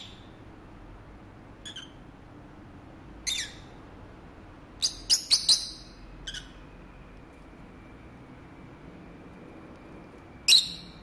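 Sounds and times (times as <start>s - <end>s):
lovebirds chirping shrilly: 1.6s - 2.0s, 3.3s - 3.8s, 10.5s - 11.0s.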